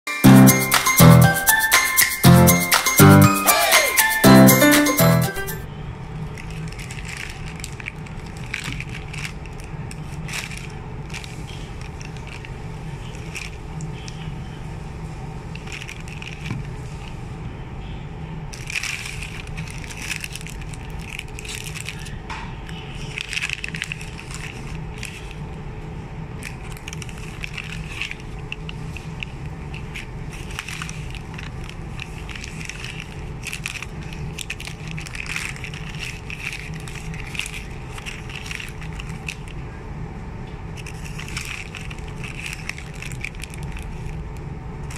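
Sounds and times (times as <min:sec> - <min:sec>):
plastic wrappers crinkling: 0:06.2 - 0:14.3, 0:15.5 - 0:17.2, 0:18.5 - 0:25.6, 0:26.3 - 0:39.6, 0:40.7 - 0:44.9.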